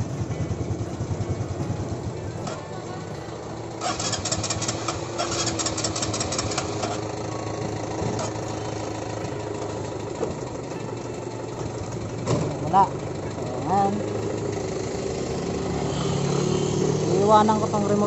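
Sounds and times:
small motorcycle engine running: 0.0 - 18.0
rapid clicking rattle: 3.8 - 7.1.

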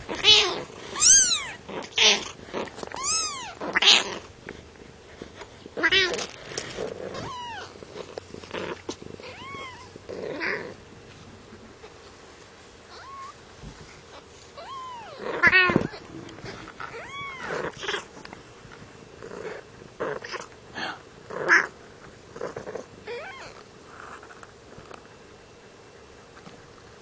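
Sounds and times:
cat meowing: 0.1 - 2.3, 2.9 - 4.2, 7.2 - 7.8, 9.2 - 10.7, 12.9 - 13.4, 14.6 - 16.1, 16.8 - 18.1, 23.1 - 23.6.

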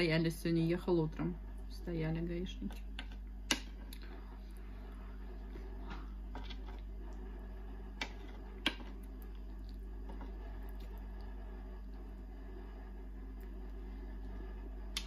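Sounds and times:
low hum: 0.0 - 15.0
person chewing: 3.8 - 4.6.

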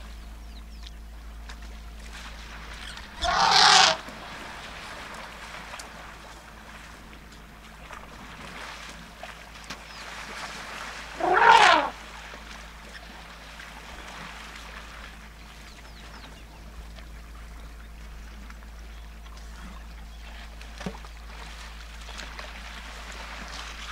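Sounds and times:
water sloshing and splashing: 1.4 - 23.9
elephant trumpeting: 3.2 - 4.0, 11.2 - 12.0.

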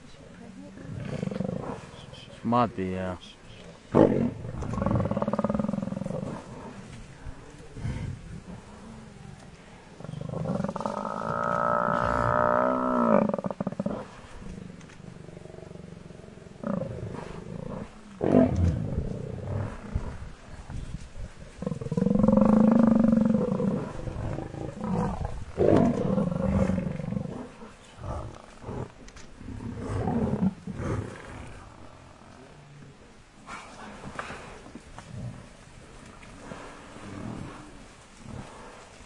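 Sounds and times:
lions growling and snarling: 0.6 - 2.3, 3.7 - 32.7, 33.4 - 39.0.

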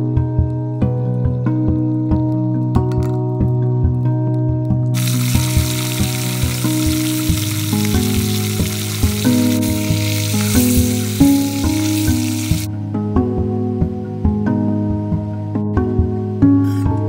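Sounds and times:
gentle instrumental music: 0.0 - 17.0
hot oil sizzling: 5.0 - 12.7.

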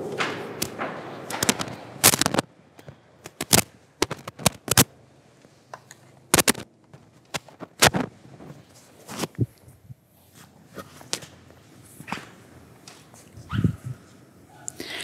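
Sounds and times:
knocks and clicks in a hall: 0.0 - 8.7.

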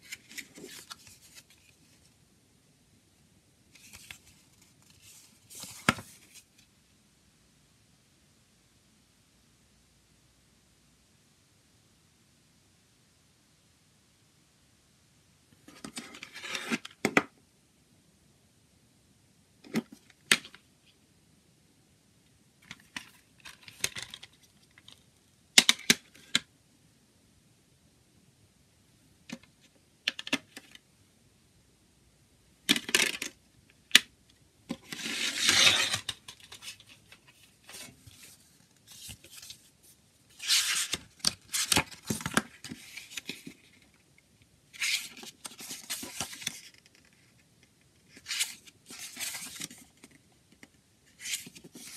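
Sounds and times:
paper pages rustling: 0.0 - 2.1, 3.8 - 6.6, 34.7 - 44.0, 44.8 - 47.3, 48.1 - 50.2, 51.2 - 51.9.

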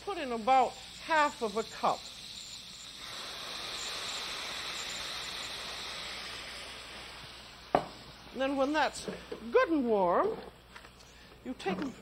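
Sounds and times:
food sizzling in a pan: 0.0 - 9.1.

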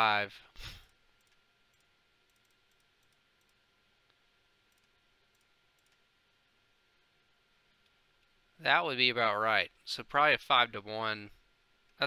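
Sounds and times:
faint computer clicks: 0.8 - 6.0.

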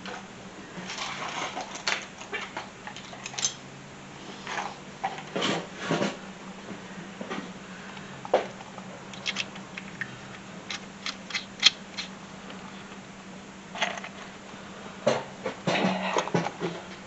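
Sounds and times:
steady low hum: 0.0 - 17.0
metal bolts clinking in bucket: 9.1 - 9.6, 10.7 - 12.1.

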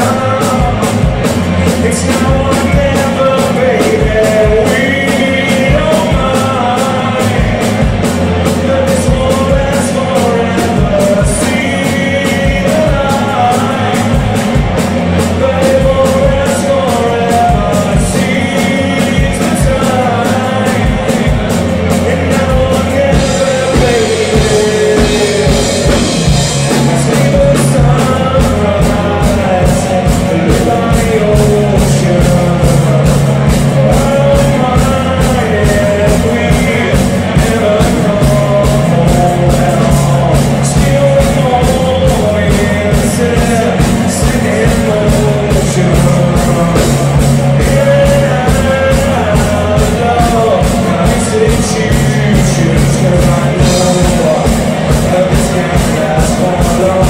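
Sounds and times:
drum beat: 0.0 - 57.0
live rock band: 0.0 - 57.0
person singing: 0.0 - 57.0.

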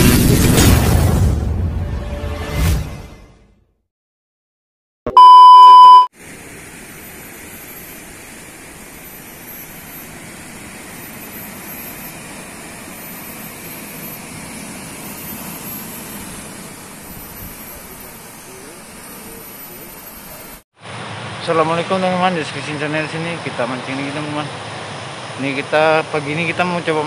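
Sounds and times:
loud steady beep: 5.1 - 6.1.

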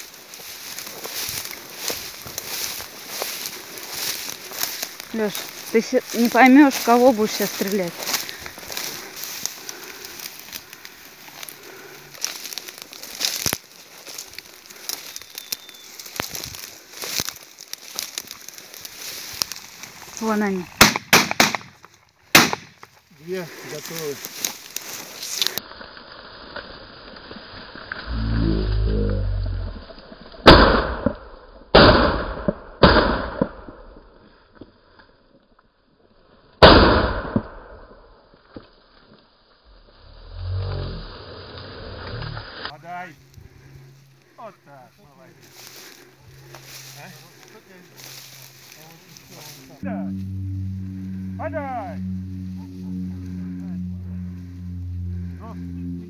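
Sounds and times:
dry grass crackling underfoot: 0.0 - 30.5, 38.3 - 56.0
shotgun shots echoing: 20.8 - 22.8.

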